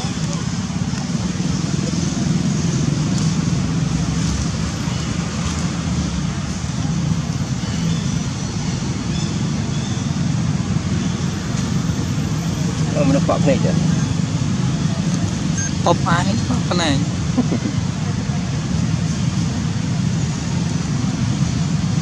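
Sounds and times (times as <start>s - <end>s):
low rumbling background noise: 0.0s - 22.0s.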